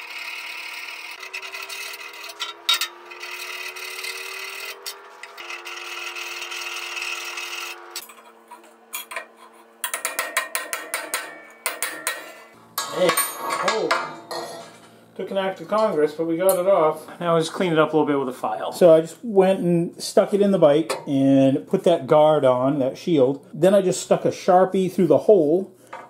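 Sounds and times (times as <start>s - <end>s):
hand file rasping metal: 0.0s - 12.6s.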